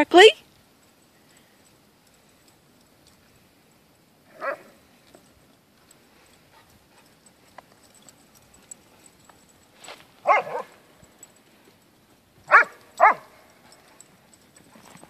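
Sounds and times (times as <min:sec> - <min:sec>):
dog barking: 0:04.3 - 0:04.7, 0:10.2 - 0:10.8, 0:12.5 - 0:13.4.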